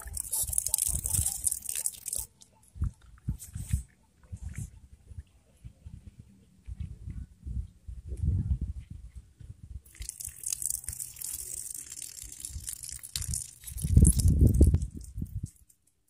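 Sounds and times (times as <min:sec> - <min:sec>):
water running from a tap: 0:09.9 - 0:14.6.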